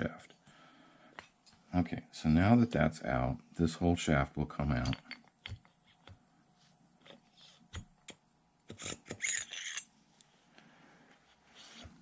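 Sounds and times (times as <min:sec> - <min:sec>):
metal parts clicking and scraping: 0:04.8 - 0:05.7, 0:08.8 - 0:09.9.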